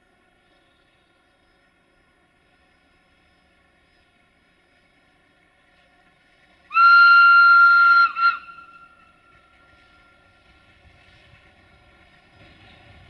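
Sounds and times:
locomotive whistle blasts: 6.7s - 10.3s.

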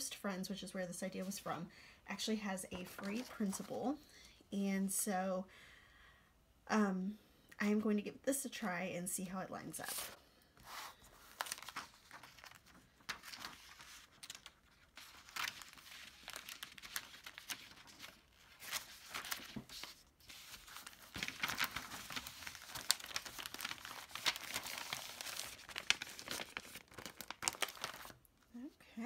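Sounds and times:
paper rustling: 2.7s - 3.8s, 9.8s - 28.2s
plastic sheet crinkling: 2.8s - 3.8s, 9.8s - 28.3s.

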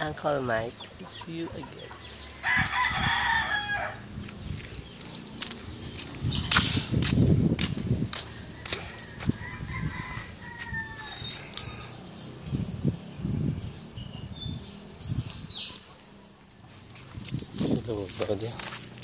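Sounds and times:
rooster crowing: 2.4s - 4.1s, 8.2s - 12.0s.

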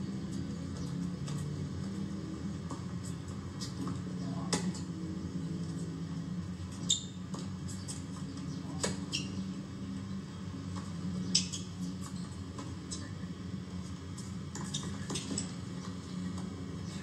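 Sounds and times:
tennis ball bouncing: 2.6s - 3.0s.

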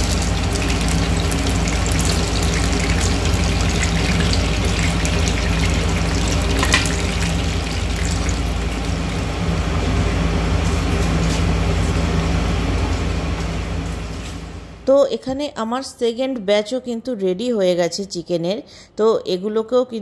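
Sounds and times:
chicken sizzling in hot oil: 0.0s - 14.7s
kitchen hood fan humming: 0.0s - 20.0s.

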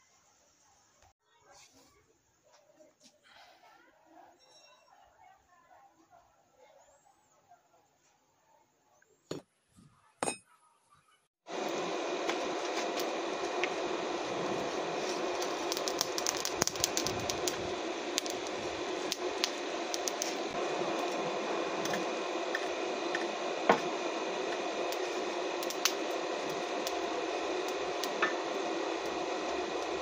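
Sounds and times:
charcoal fire crackling and popping: 11.5s - 30.0s
fire rushing hiss: 11.5s - 30.0s.

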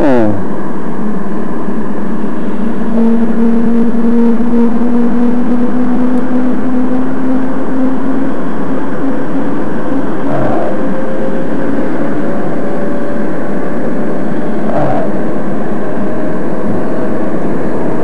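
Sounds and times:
two-stroke engine droning: 0.0s - 18.0s.

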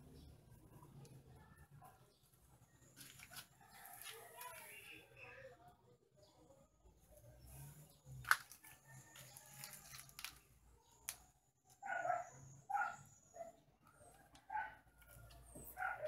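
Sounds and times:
dog barking: 11.8s - 13.6s, 14.2s - 14.9s, 15.7s - 16.0s.

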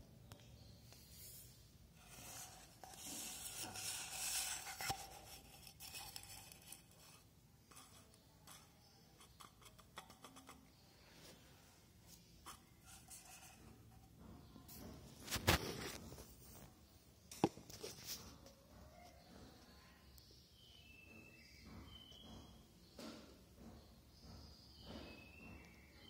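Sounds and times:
rustling and scraping: 0.8s - 19.5s.

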